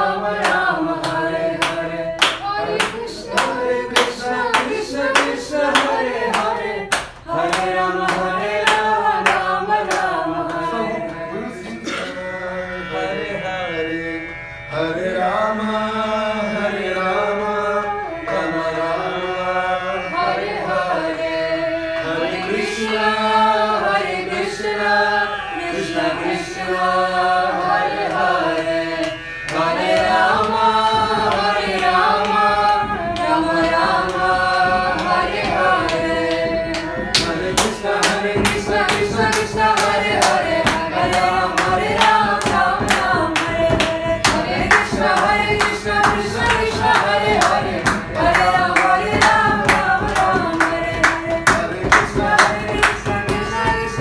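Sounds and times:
rhythmic hand clapping: 0:00.0 - 0:11.8, 0:20.2 - 0:54.0
voices singing devotional melody: 0:00.0 - 0:54.0
drum accompaniment: 0:27.6 - 0:54.0.

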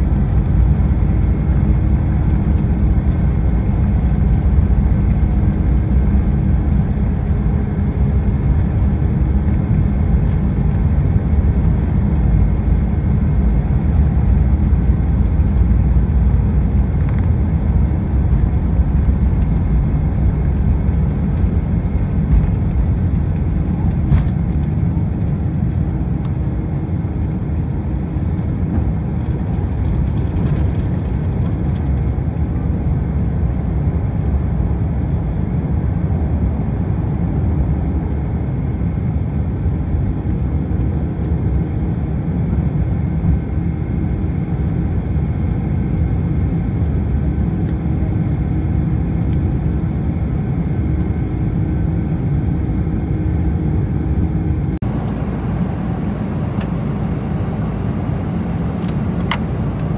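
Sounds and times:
cabin hum: 0:00.0 - 0:32.6
airplane cabin engine rumble: 0:00.0 - 0:59.9.

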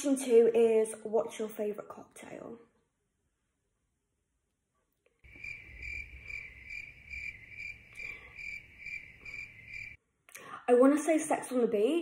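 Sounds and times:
cricket chirping: 0:05.2 - 0:10.0.

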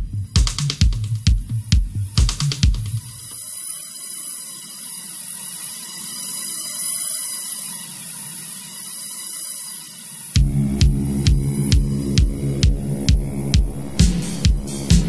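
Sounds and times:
hissing noise swell: 0:03.0 - 0:15.0
faint low drone: 0:10.4 - 0:15.0.

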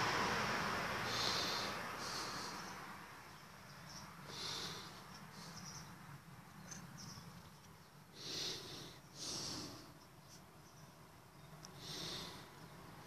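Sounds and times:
breathy snorts: 0:01.0 - 0:02.9, 0:08.1 - 0:10.0, 0:11.8 - 0:12.6.

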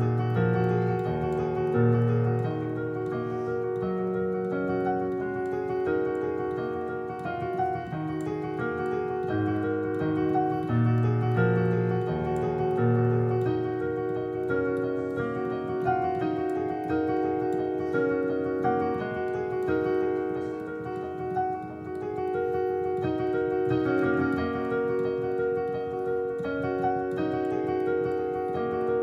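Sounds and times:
digital piano playing: 0:00.0 - 0:29.0
low bass piano notes: 0:00.0 - 0:29.0.

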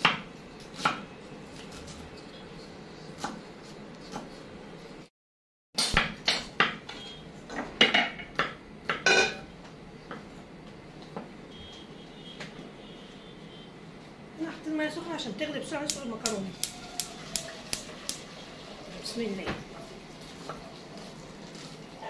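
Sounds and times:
metal pot and lid clanking: 0:09.0 - 0:09.4.

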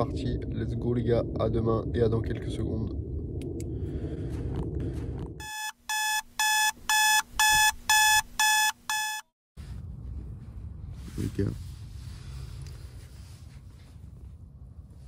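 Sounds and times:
alarm beeping: 0:05.4 - 0:09.3.

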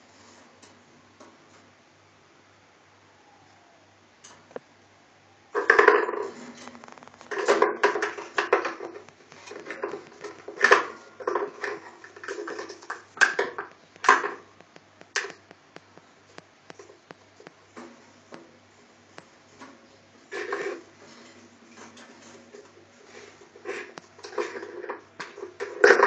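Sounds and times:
plastic container clacking on wood: 0:05.6 - 0:14.4.

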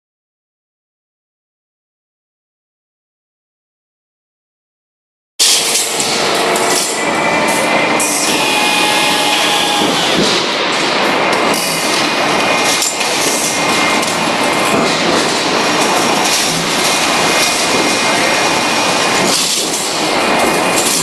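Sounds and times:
industrial machinery noise: 0:05.4 - 0:21.0.

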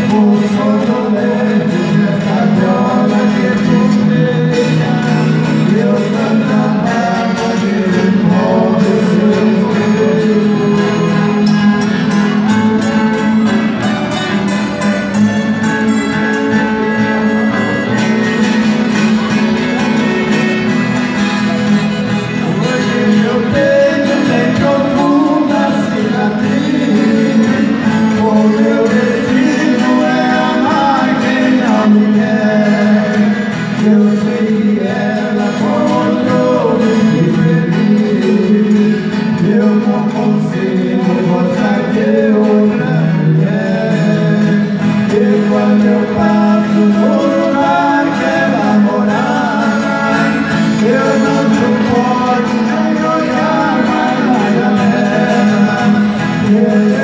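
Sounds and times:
accordion: 0:00.0 - 0:57.0
acoustic guitars: 0:00.0 - 0:57.0
men singing: 0:00.0 - 0:57.0.

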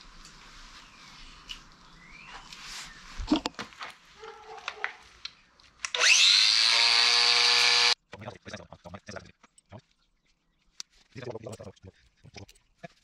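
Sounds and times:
angle grinder whining: 0:05.9 - 0:08.0.

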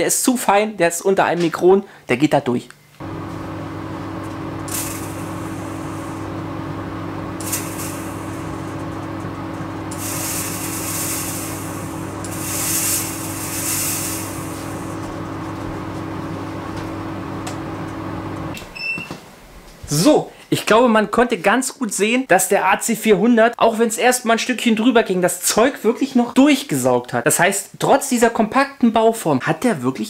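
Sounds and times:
fog machine hissing: 0:03.0 - 0:18.6
air filter fan humming: 0:03.0 - 0:20.0.

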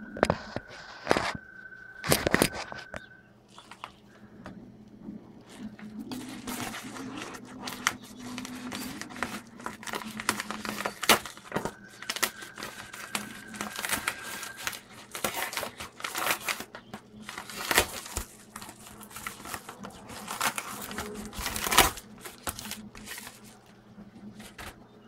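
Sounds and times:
paper envelope tearing: 0:05.4 - 0:24.8.

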